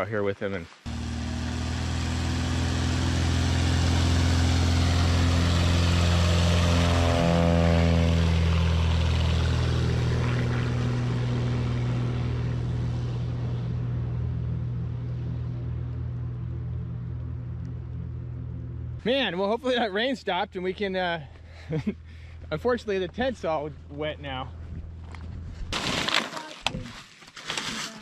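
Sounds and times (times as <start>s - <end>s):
small plane passing by: 0.9s - 19.0s.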